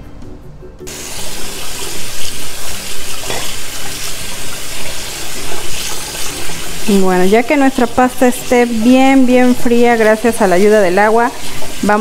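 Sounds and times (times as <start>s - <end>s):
tap water pouring onto pasta: 0.9s - 12.0s.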